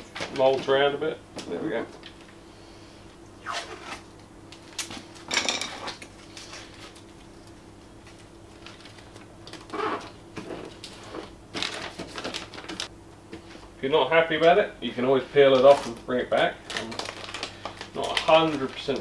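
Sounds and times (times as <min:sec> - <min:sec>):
faint steady hum: 0:00.0 - 0:19.0
paper and tape crinkling: 0:05.9 - 0:12.9, 0:15.4 - 0:19.0.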